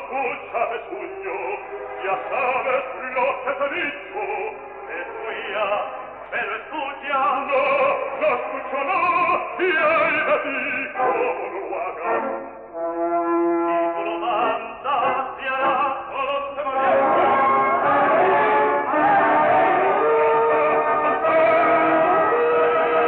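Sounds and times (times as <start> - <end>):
operatic singing with vibrato: 0.0 - 23.0
orchestra playing: 11.0 - 14.5, 16.6 - 23.0.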